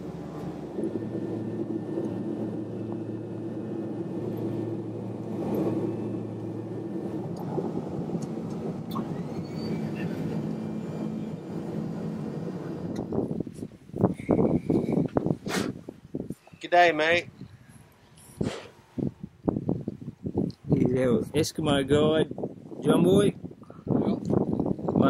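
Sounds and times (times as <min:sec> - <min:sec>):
airplane engines droning: 0:00.0 - 0:15.1.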